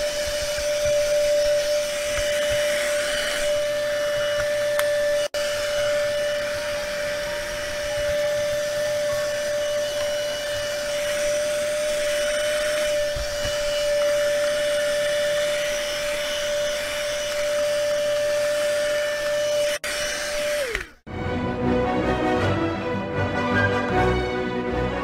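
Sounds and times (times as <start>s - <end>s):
mini vacuum cleaner whining: 0.0s - 21.1s
music: 21.1s - 25.0s.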